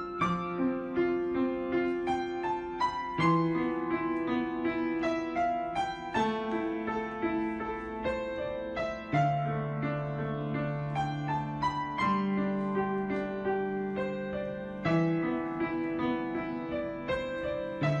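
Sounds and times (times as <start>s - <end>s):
slow piano melody: 0.0s - 18.0s.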